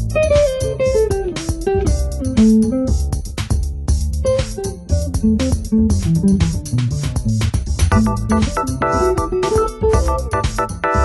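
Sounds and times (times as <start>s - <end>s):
bass line: 0.0s - 11.0s
steady drum beat: 0.0s - 11.0s
keyboard chords: 7.9s - 11.0s.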